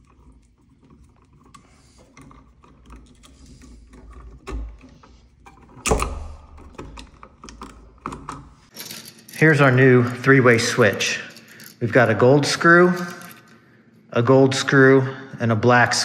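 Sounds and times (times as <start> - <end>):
screwdriver and wires clicking: 0.0 - 8.5.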